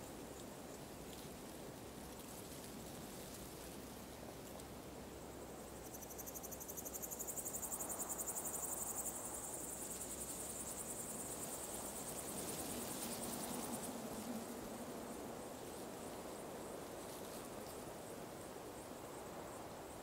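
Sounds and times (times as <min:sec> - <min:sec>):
faint background hiss: 0:00.0 - 0:20.0
insect chirring trill: 0:05.6 - 0:14.3.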